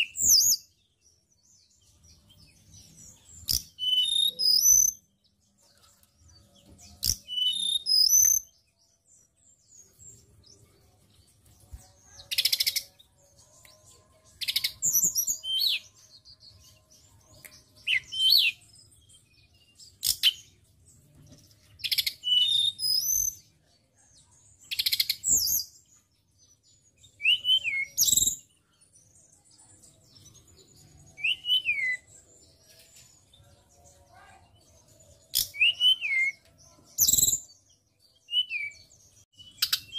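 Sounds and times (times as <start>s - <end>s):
bird singing whistled phrases: 3.5s - 5.0s, 7.0s - 8.5s, 17.7s - 18.7s, 21.8s - 23.4s, 27.2s - 28.5s, 31.1s - 32.1s, 35.3s - 36.4s, 37.0s - 37.5s, 38.2s - 39.9s.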